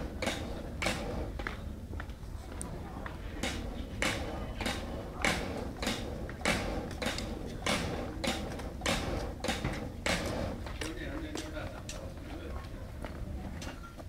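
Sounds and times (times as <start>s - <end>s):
rhythmic creaking rasp of cranked drum: 0.0s - 1.6s, 3.3s - 12.3s.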